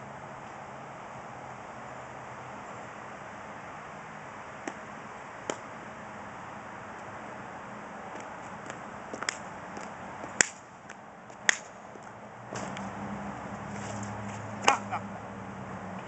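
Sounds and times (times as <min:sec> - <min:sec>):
steady low hum: 0:00.0 - 0:16.0
slaps on paved surface: 0:04.6 - 0:04.8, 0:05.4 - 0:05.7, 0:08.1 - 0:12.9, 0:13.8 - 0:14.9.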